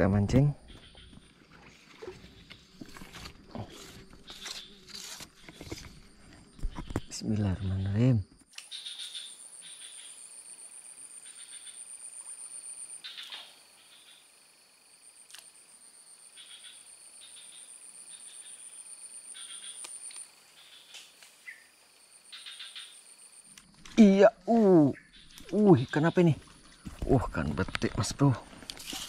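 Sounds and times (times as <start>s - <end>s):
insect trill: 0.0s - 29.0s
short chirping calls: 24.0s - 26.3s.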